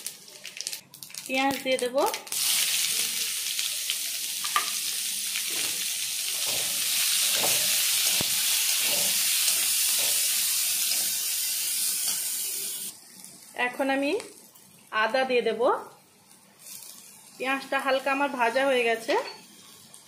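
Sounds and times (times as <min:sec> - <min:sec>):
onion sizzling in hot oil: 0:00.0 - 0:15.4, 0:16.3 - 0:20.0
spatula knocking and scraping: 0:06.4 - 0:10.4.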